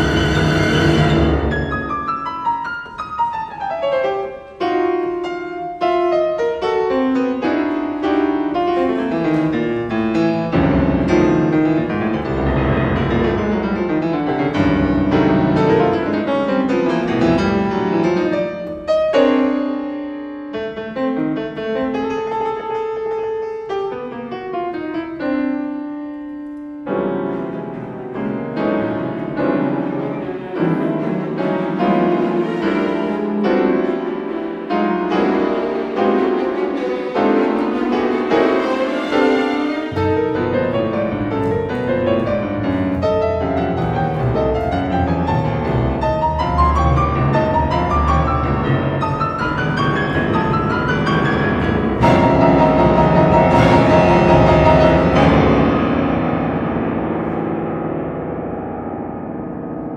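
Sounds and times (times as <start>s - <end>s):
piano runs: 26.9s - 59.9s
sustained string notes: 28.8s - 46.6s.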